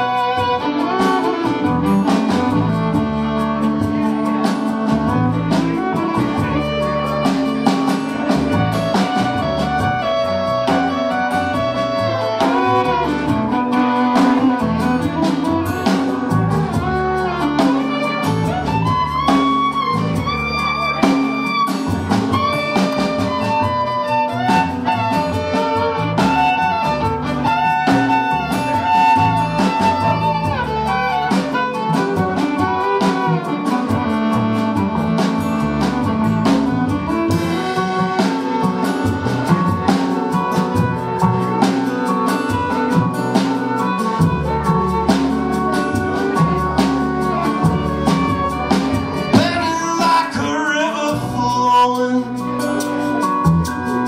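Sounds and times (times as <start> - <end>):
drums: 0.0 - 54.0
fiddle melody: 0.0 - 54.0
strummed acoustic guitar: 0.0 - 54.0
upright bass: 0.0 - 54.0.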